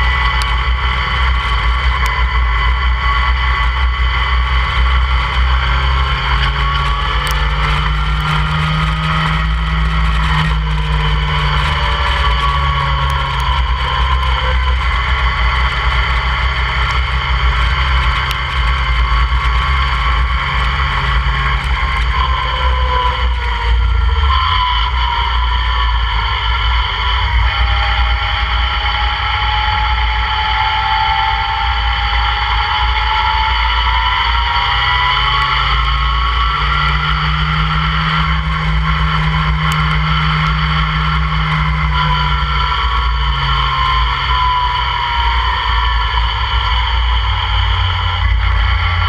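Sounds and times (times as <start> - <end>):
race car engine: 0.0 - 49.0.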